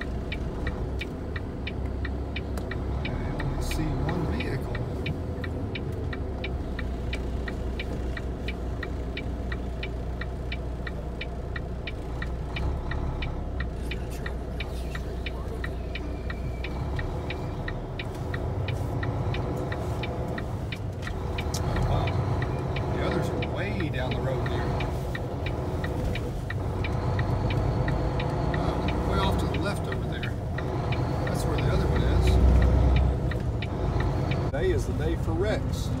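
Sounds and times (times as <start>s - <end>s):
quick even ticking: 0.0s - 35.6s
diesel engine rumble: 0.0s - 36.0s.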